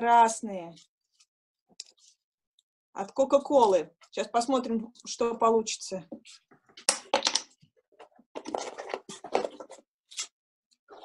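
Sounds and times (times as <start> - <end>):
paper and plastic rustling: 8.0 - 10.3.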